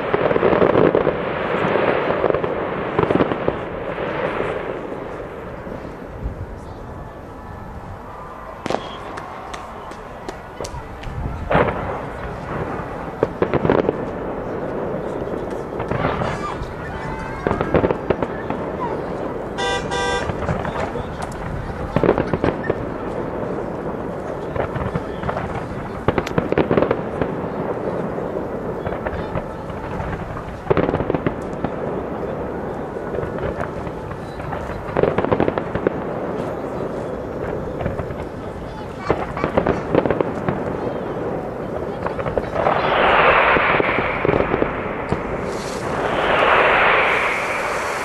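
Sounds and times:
distant fireworks bangs: 0.0 - 48.0.

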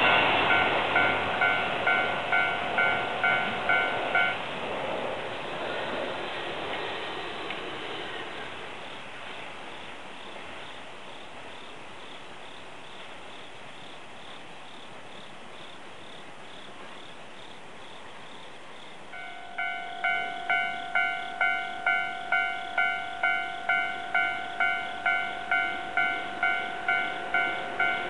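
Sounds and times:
level-crossing warning bell: 0.0 - 4.5, 19.1 - 28.0
crickets chirping faintly: 0.0 - 28.0.

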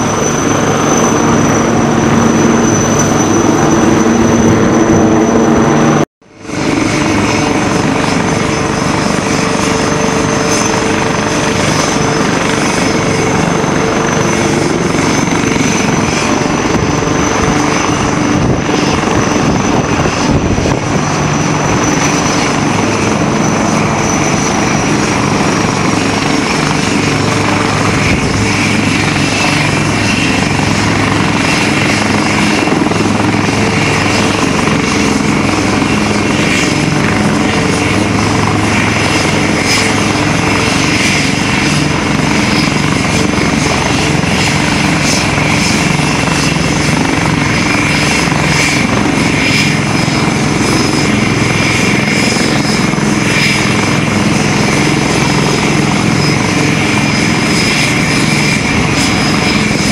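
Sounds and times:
helicopter drone with high whine: 0.0 - 59.9.

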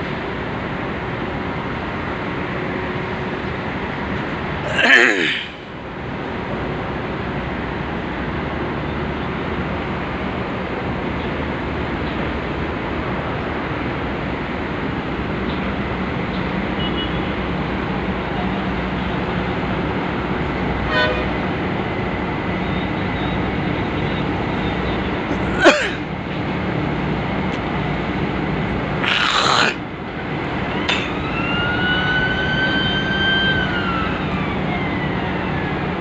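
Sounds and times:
ship engines droning: 0.0 - 36.0.

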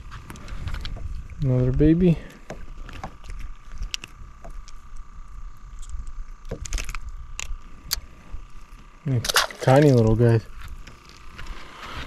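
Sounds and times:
low wind rumble: 0.0 - 9.2
faint steady hum: 0.0 - 12.0.

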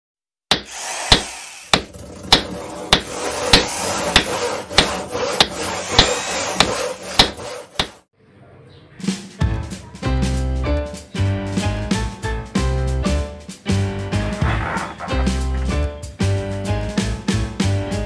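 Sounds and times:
sharp hammer blows: 0.5 - 8.0.

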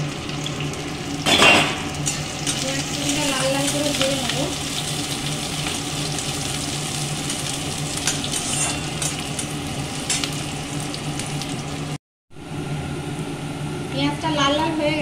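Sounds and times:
onions sizzling in oil: 0.0 - 12.0
metal spatula scraping a pan: 8.0 - 9.2.

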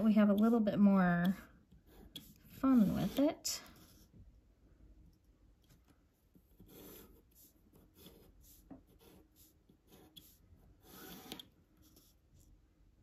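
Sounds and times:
pencil scratching on paper: 0.0 - 0.8, 1.7 - 4.1, 6.3 - 12.5.

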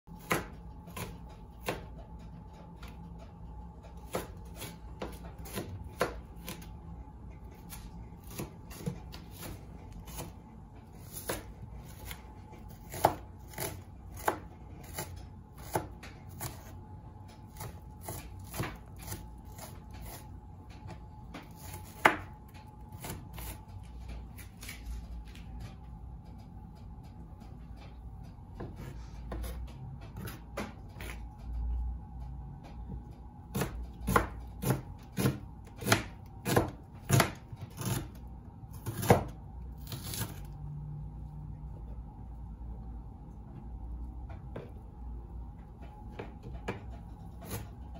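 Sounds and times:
knife chopping on cutting board: 0.1 - 2.0, 4.0 - 6.7, 7.6 - 10.4, 11.0 - 16.8, 17.5 - 20.3, 21.3 - 23.7, 28.6 - 31.2, 33.5 - 40.4, 46.1 - 47.9
faint steady hum: 0.1 - 47.9.

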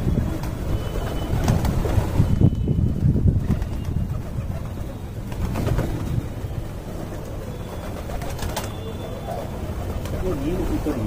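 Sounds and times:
wings flapping: 0.1 - 11.0
pigeons cooing: 4.0 - 11.0.

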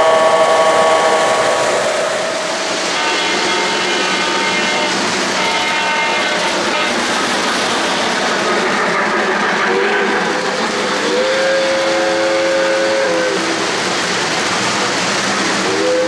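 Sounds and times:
model trains rolling on track: 0.0 - 16.0.

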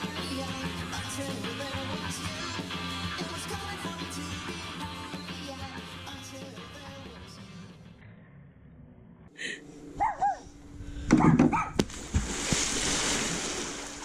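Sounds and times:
churning water: 11.6 - 14.0
splash into swimming pool: 11.8 - 14.0.

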